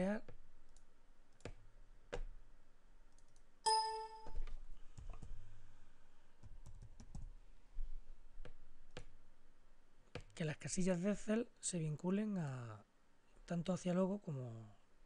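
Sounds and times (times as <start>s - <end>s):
short electronic beep: 3.7s - 4.4s.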